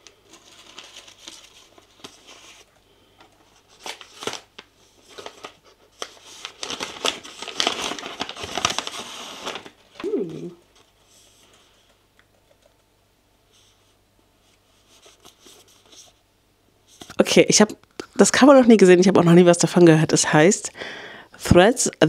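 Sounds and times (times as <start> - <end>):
wrapping paper crinkling and tearing: 0.0 - 11.4.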